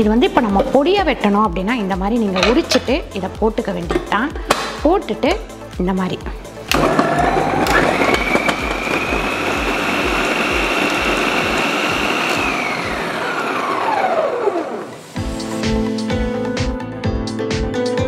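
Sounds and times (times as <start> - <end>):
food processor motor whining: 6.7 - 15.2.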